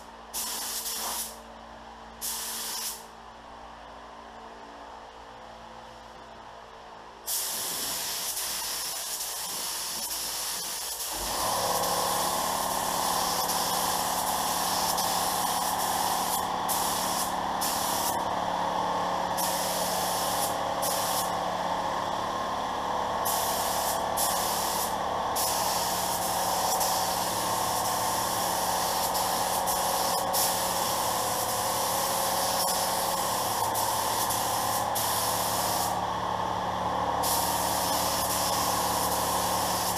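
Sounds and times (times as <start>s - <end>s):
spray gun hissing: 0.4s - 1.4s, 2.2s - 3.0s, 7.3s - 18.3s, 19.3s - 21.4s, 23.2s - 36.0s, 37.2s - 39.9s.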